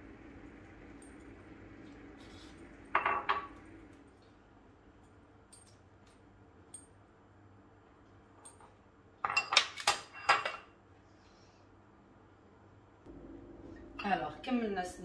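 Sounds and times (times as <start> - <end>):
utensils and dishes clinking: 8.4 - 10.7.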